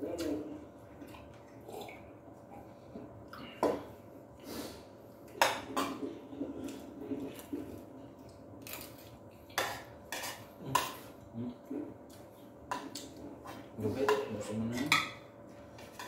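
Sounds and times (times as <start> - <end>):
cutlery scraping on plates: 9.6 - 11.1.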